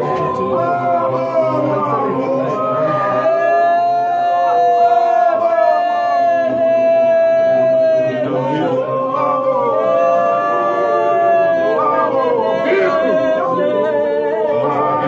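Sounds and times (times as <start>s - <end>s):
congregation singing a hymn: 0.0s - 15.0s.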